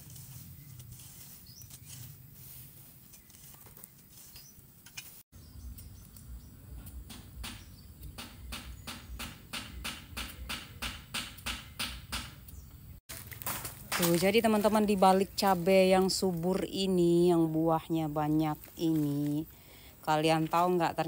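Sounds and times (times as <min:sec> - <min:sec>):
rake scraping dry weeds: 0:00.0 - 0:06.2, 0:13.1 - 0:21.0
birds chirping: 0:00.3 - 0:02.1, 0:03.0 - 0:04.8, 0:05.4 - 0:10.9, 0:11.5 - 0:13.0.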